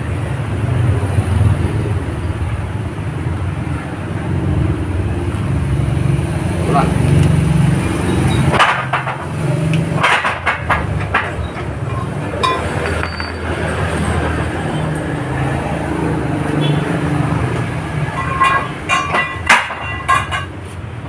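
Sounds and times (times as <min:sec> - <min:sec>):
metal clinks and knocks: 0:08.3 - 0:14.0, 0:18.0 - 0:20.6.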